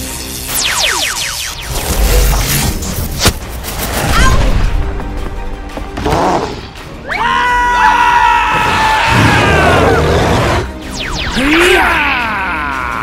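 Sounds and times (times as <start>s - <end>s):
animated film music: 0.0s - 13.0s.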